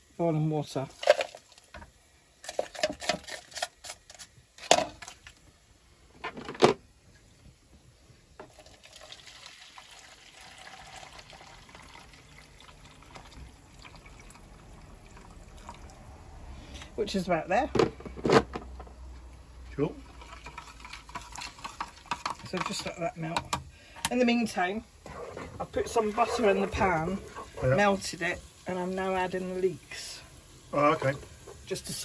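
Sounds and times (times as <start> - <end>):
boiling water pouring into jug: 0.8 - 1.8, 8.4 - 17.0, 19.8 - 32.0.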